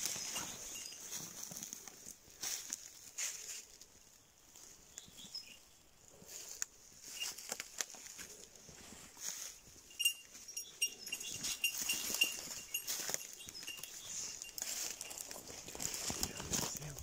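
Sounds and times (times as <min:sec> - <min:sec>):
footsteps crunching through dry leaves: 0:00.0 - 0:05.4, 0:06.2 - 0:17.0
rapid high ringing ticks: 0:09.8 - 0:16.0.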